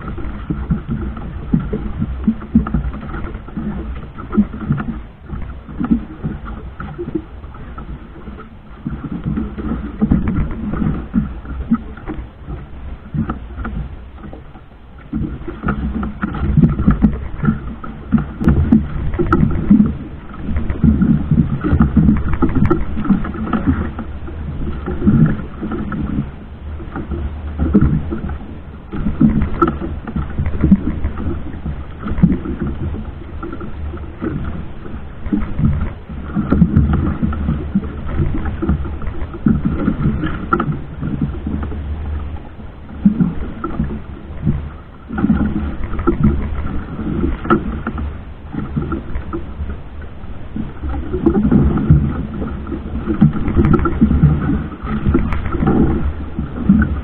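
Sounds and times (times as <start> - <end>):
boat engine running: 0.0 - 57.0
water surging against hull: 0.0 - 57.0.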